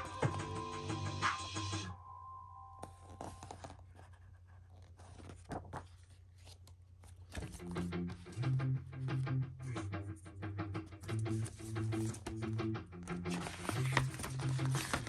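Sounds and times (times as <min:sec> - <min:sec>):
background music: 0:00.0 - 0:02.8, 0:07.6 - 0:15.0
cd packaging clicks and rustling: 0:11.1 - 0:15.0.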